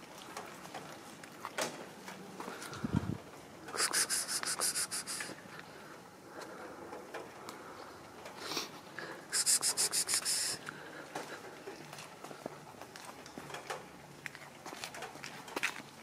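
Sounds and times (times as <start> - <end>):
scratchy rubbing strokes: 3.8 - 5.4, 9.4 - 10.6.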